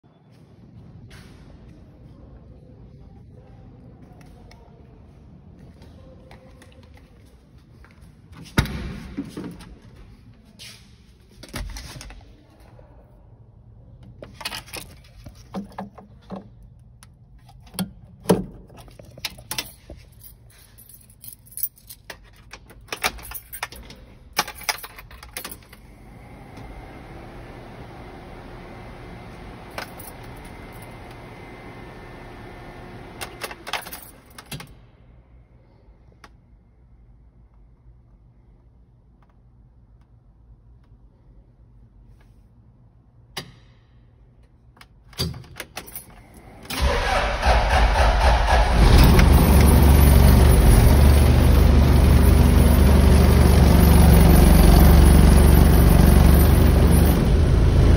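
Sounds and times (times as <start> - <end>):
keys jangling: 17.4 - 25.8, 29.7 - 31.1, 33.2 - 34.7, 45.2 - 46.5.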